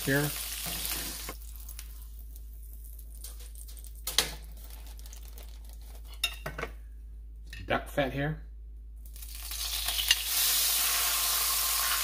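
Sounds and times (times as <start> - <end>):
foil crinkling: 1.0 - 6.2.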